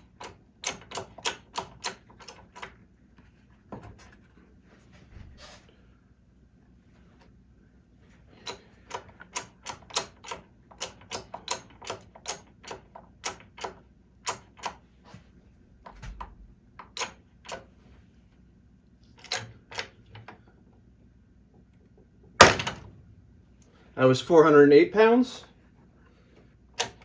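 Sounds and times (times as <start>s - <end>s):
hydraulic jack clicking: 0.0s - 2.7s, 8.4s - 14.8s.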